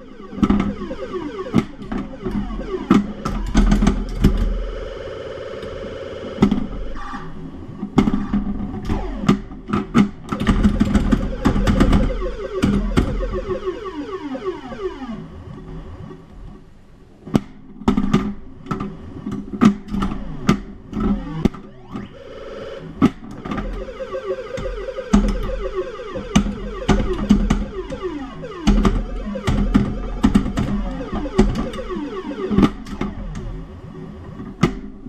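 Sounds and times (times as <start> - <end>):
electronic falling tones: 0.0 - 5.0, 10.4 - 16.0, 21.0 - 34.6
pinball playfield clicks and knocks: 0.3 - 4.6, 6.4 - 7.2, 7.8 - 13.6, 17.3 - 22.1, 23.0 - 33.5, 34.4 - 35.0
warbling held tone: 11.1 - 15.2, 23.4 - 33.6.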